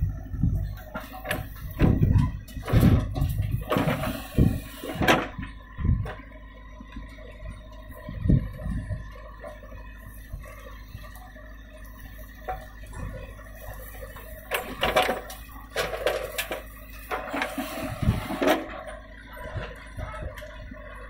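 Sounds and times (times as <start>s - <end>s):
diesel engine running: 0.0s - 21.0s
soil clattering into metal trolley: 0.9s - 5.4s, 14.0s - 19.0s.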